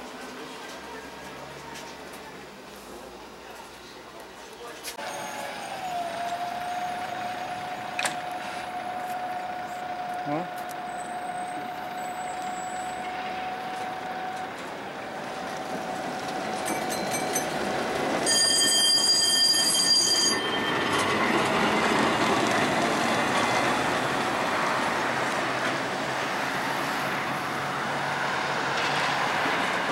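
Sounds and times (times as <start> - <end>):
tram rumbling along track: 0.0 - 29.9
tram wheels squealing on rails: 4.9 - 29.9.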